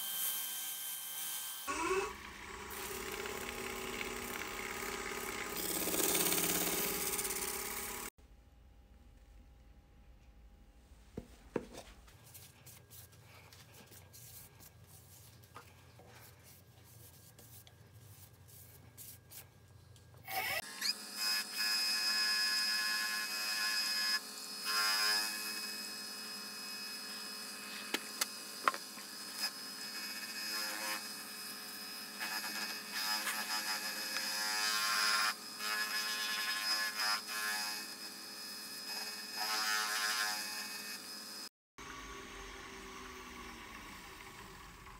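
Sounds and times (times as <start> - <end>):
wood lathe whining: 0.0 - 8.1, 20.3 - 44.9
paper towel rubbing spinning wood: 2.8 - 8.1.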